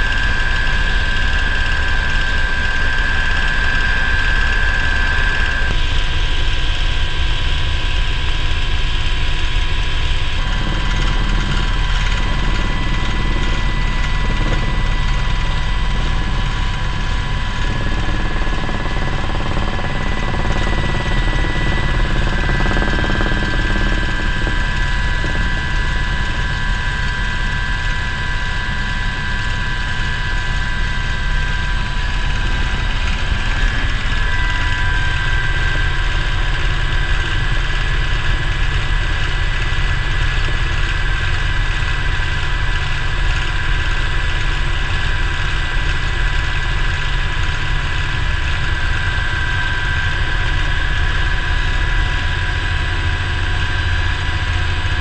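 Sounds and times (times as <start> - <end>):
helicopter engine whine: 0.0 - 55.0
helicopter rotor beat: 0.0 - 55.0.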